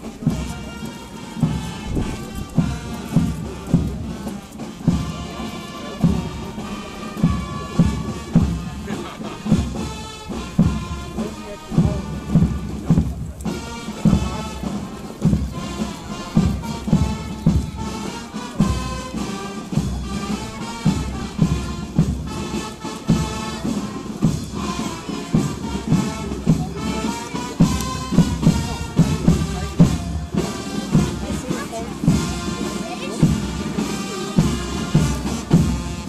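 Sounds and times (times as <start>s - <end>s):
marching band playing: 0.0s - 36.0s
bass drum thumping: 7.2s - 18.0s.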